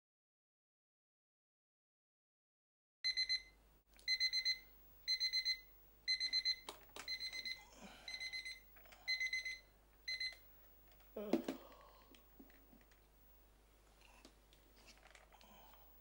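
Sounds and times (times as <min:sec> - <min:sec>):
electronic alarm beeping: 0:03.1 - 0:10.4.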